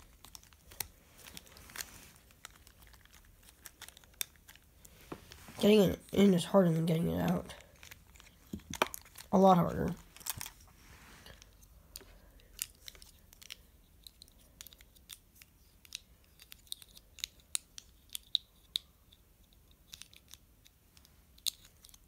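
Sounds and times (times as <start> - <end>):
plastic puzzle pieces clicking: 0.0 - 4.9, 11.4 - 22.0.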